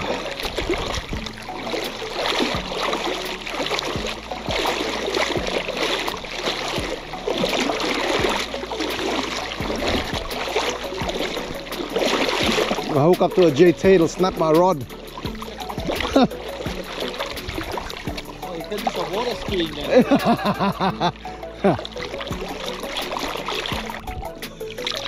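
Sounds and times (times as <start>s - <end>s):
water sloshing around person wading: 0.0s - 25.0s.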